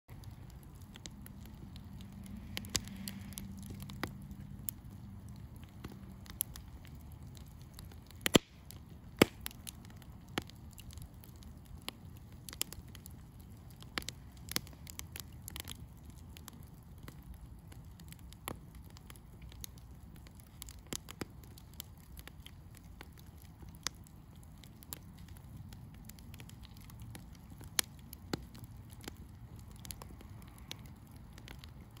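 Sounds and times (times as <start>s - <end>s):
campfire crackling and popping: 0.1s - 32.0s.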